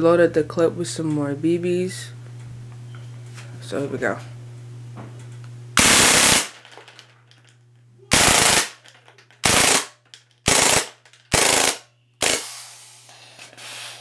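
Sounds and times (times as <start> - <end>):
airsoft gun firing bursts: 5.8 - 6.6, 8.1 - 8.8, 9.4 - 12.5.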